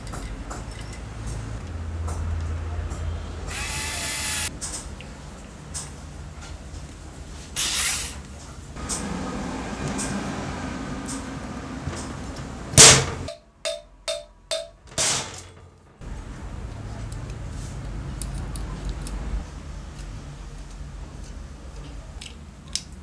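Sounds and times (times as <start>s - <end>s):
loud knock: 12.8s - 15.6s.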